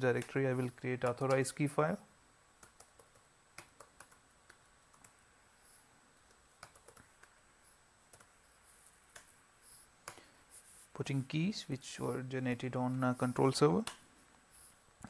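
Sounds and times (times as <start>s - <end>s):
faint keystrokes on a keyboard: 0.1s - 1.6s, 2.6s - 5.2s, 6.1s - 7.4s, 8.1s - 9.4s.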